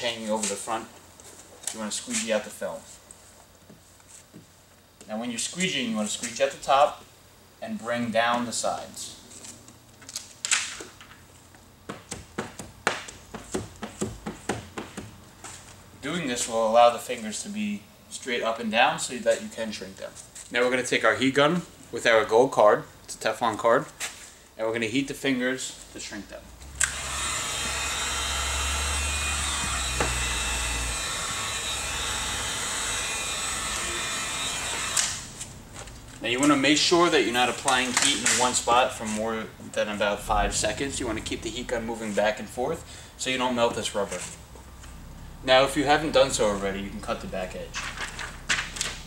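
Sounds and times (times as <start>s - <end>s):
heat gun fan blowing: 26.6s - 49.0s.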